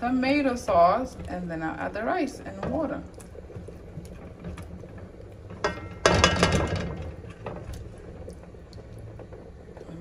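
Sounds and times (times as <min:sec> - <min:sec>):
spoon stirring sauce in pot: 0:00.3 - 0:09.9
spoon clattering against pot: 0:05.5 - 0:07.6.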